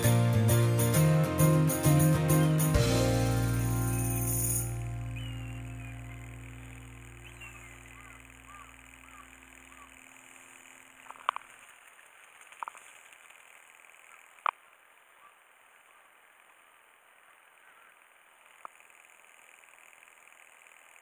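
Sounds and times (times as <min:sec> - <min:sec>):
background music: 0:00.0 - 0:08.2
insect chirring: 0:03.8 - 0:21.0
sharp clicks: 0:07.4 - 0:14.6, 0:18.4 - 0:21.0.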